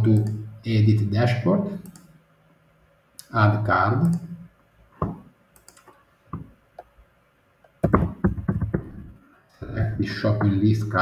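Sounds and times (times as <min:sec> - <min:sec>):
keyboard typing: 0:05.6 - 0:06.0, 0:07.8 - 0:09.1.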